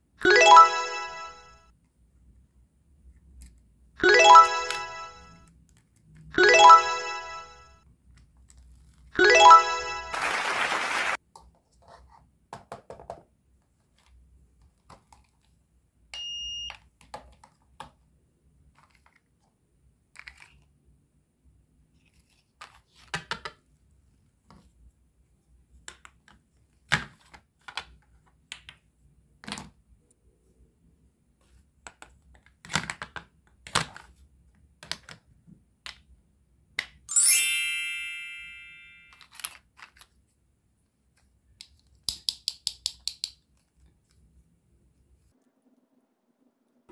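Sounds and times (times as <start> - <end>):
bell-like ding: 37.1 - 39.2
toy pieces clicking and tapping: 41.6 - 43.4.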